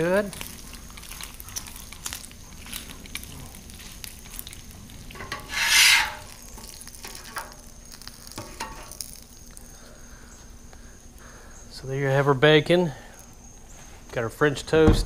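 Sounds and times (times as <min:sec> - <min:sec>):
bacon sizzling on a griddle: 0:00.0 - 0:14.0
metal spatula scraping a plate: 0:05.2 - 0:07.5.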